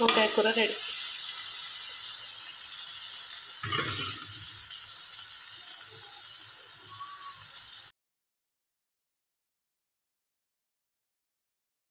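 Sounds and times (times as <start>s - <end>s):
curry sizzling in a pan: 0.0s - 8.0s.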